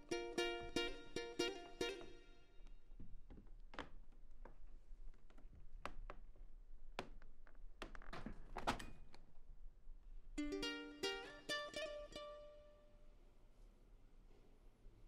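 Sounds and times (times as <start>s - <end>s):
plucked string music: 0.0s - 2.8s, 10.4s - 13.0s
soft knocks and taps: 2.6s - 8.8s.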